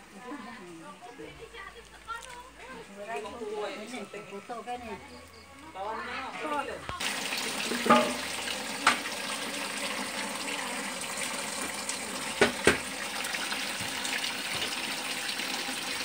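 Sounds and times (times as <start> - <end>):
water running: 6.5 - 16.0.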